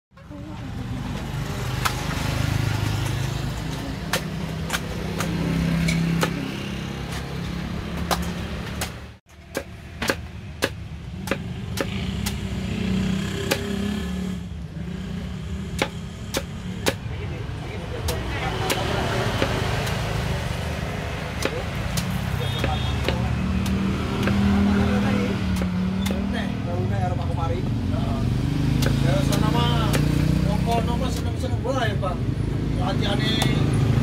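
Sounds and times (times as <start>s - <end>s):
road traffic rumble: 0.1s - 34.0s
machete chopping coconut husk: 1.7s - 2.3s, 3.0s - 7.3s, 7.9s - 14.0s, 15.6s - 17.1s, 17.8s - 26.4s, 28.5s - 31.5s, 33.0s - 33.7s.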